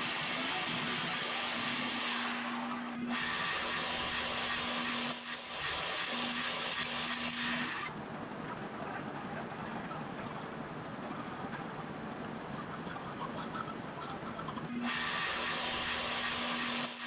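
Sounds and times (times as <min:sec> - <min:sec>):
drill bit cutting aluminum: 0:00.0 - 0:07.9, 0:14.7 - 0:17.0
milling machine hum and whine: 0:00.0 - 0:17.0.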